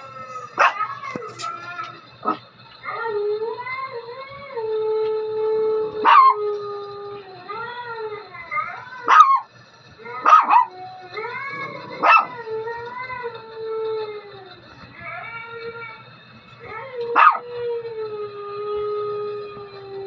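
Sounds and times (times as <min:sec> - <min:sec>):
dogs howling: 0:00.0 - 0:16.0, 0:16.6 - 0:20.0
dog barking: 0:00.6 - 0:00.9, 0:06.0 - 0:06.4, 0:09.0 - 0:09.5, 0:10.2 - 0:10.7, 0:11.8 - 0:12.4, 0:17.2 - 0:17.4.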